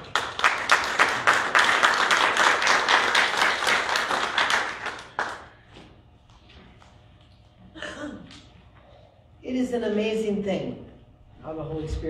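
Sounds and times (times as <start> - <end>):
congregation applauding: 0.0 - 5.6.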